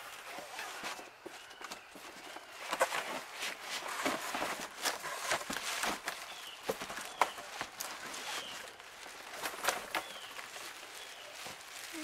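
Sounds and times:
plastic bag crinkling: 0:02.6 - 0:12.0
cardboard box scraping: 0:02.7 - 0:07.3.

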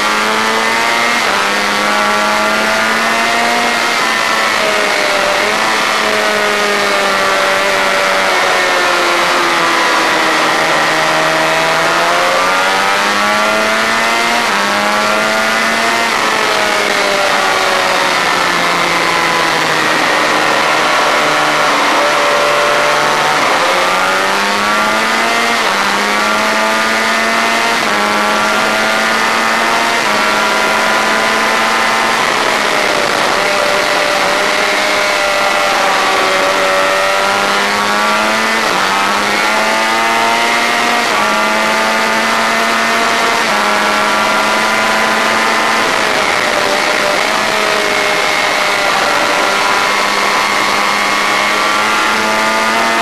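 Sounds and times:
motorcycle engine at high revs: 0:00.0 - 0:53.0
wind rush: 0:31.4 - 0:36.5.

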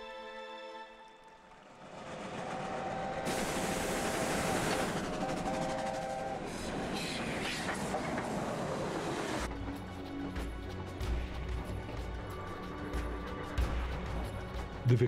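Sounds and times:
steam locomotive running: 0:01.4 - 0:14.9
train wheels clattering on rails: 0:01.5 - 0:10.8
steam hissing: 0:02.6 - 0:09.5.

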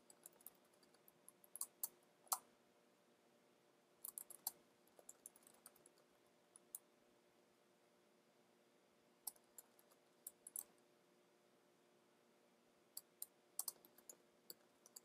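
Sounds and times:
computer keyboard keystrokes: 0:13.0 - 0:14.2.

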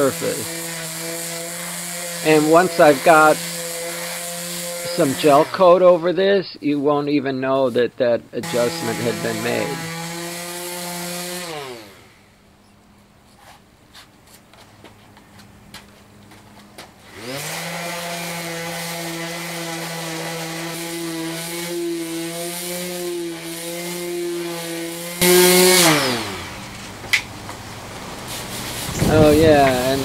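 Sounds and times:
electric palm sander: 0:00.0 - 0:06.4, 0:08.4 - 0:12.4, 0:17.0 - 0:27.2, 0:28.3 - 0:30.0.

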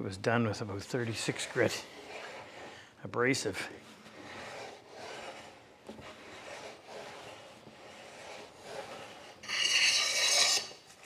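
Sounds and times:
hand plane rubbing on wood: 0:00.8 - 0:02.8, 0:03.6 - 0:10.9
plane scraping with metallic ring: 0:04.1 - 0:10.8.

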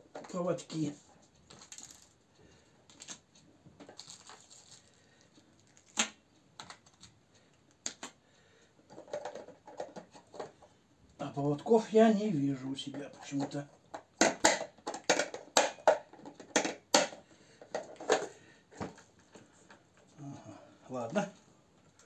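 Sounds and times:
fishing tackle clicking and rattling: 0:01.5 - 0:02.2.

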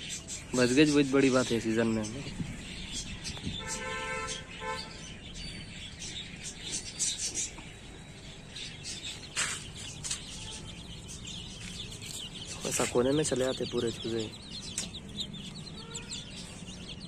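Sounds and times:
small birds chirping: 0:00.0 - 0:17.0
vehicle horn toots: 0:03.6 - 0:05.1, 0:15.8 - 0:16.4.

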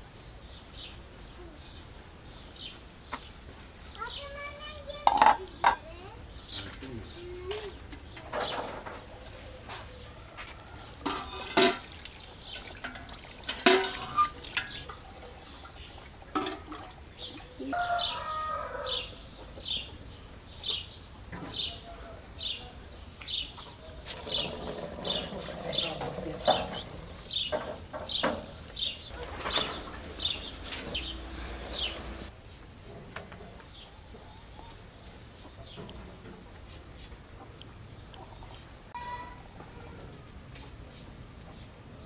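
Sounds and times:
birds calling: 0:00.3 - 0:32.3.

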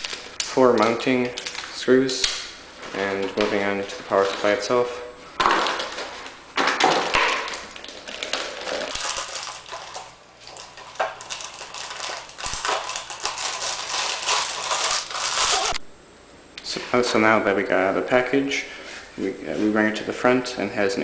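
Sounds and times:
paper pulp trays handled: 0:00.0 - 0:15.8
plastic bag crinkling: 0:00.0 - 0:15.8.

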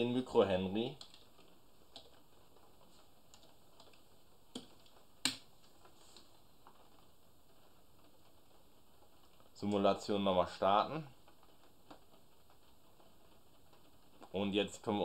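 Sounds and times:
low steady hiss: 0:00.0 - 0:15.0
computer keyboard and mouse clicks: 0:03.3 - 0:05.5.

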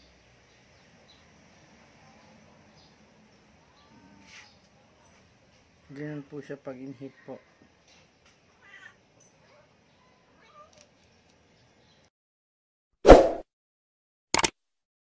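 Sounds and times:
cat calling: 0:08.6 - 0:09.6.

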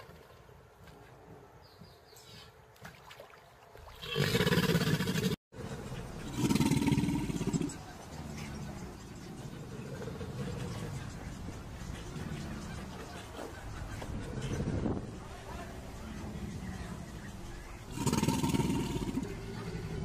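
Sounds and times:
crocodiles growling: 0:04.0 - 0:15.1, 0:15.8 - 0:20.0.

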